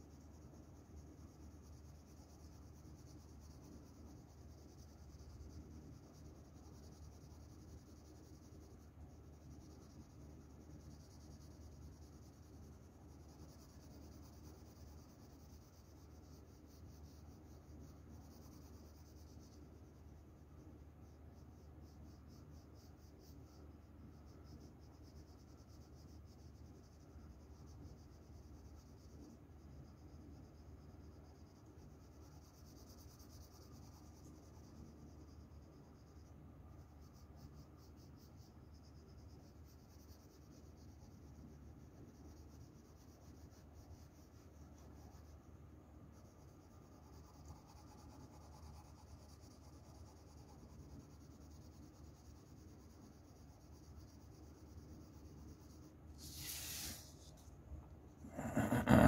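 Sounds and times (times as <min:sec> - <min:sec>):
pencil scratching on paper: 0:46.1 - 0:57.5.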